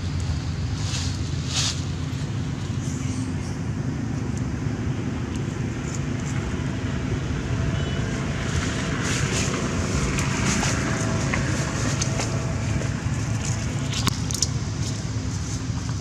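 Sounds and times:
rustling and crackling: 0.0 - 2.3, 8.4 - 16.0
low outdoor rumble: 0.0 - 16.0.

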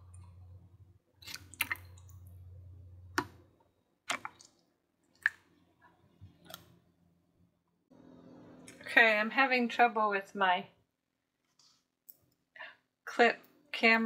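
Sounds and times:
low steady hum: 0.0 - 10.1.

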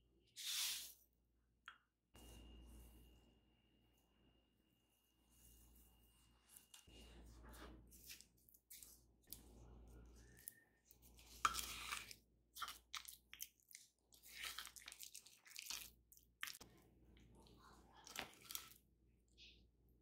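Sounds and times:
spatula mashing butter in bowl: 7.4 - 16.6.

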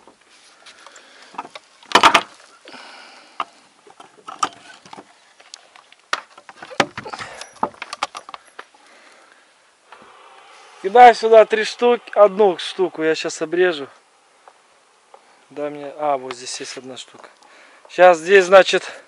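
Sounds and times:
wooden battens knocking: 6.2 - 8.4.

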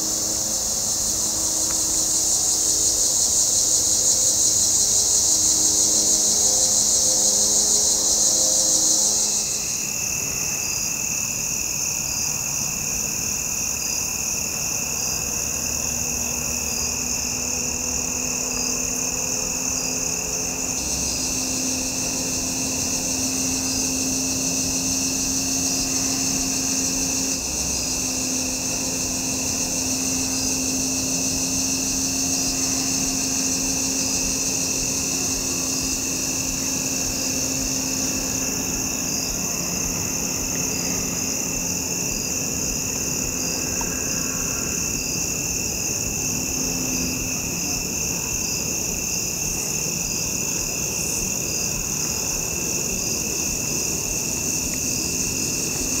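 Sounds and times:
crickets trilling: 0.0 - 56.0
low insect tone: 0.0 - 56.0.

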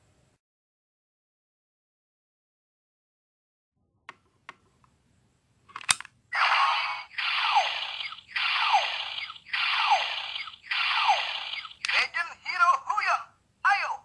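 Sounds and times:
toy piece snapping in: 5.7 - 6.1
toy speaker electronic hissing effect: 6.4 - 12.0.

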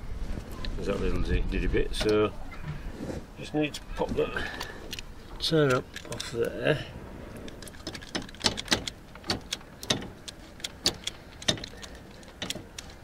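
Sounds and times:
pliers clicking on cable tie: 7.6 - 13.0.

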